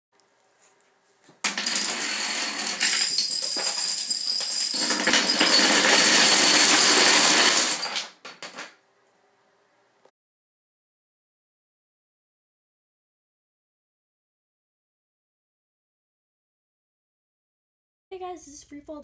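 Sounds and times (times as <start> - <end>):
domino tower collapsing: 1.4 - 8.8
plastic dominoes toppling: 1.5 - 8.7.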